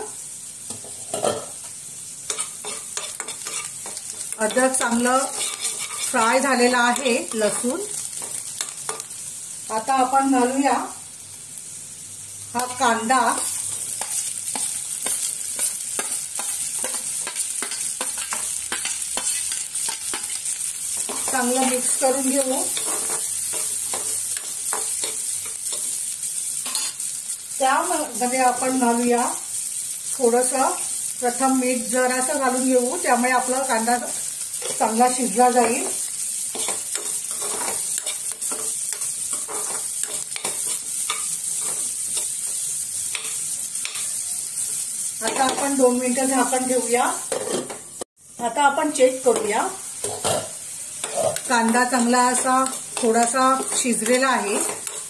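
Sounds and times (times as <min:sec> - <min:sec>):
onions sizzling in oil: 0:00.0 - 0:55.0
spoon scraping steel plate: 0:02.3 - 0:03.7, 0:05.0 - 0:06.2
metal spoon scraping a pan: 0:02.3 - 0:09.2, 0:12.6 - 0:27.0, 0:34.4 - 0:45.8, 0:47.2 - 0:47.9, 0:49.3 - 0:55.0.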